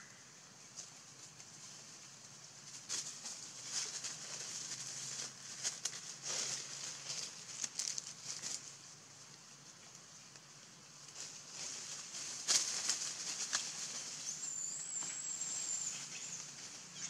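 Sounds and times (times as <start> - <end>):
crackling and rustling of dry leaves: 0.0 - 17.0.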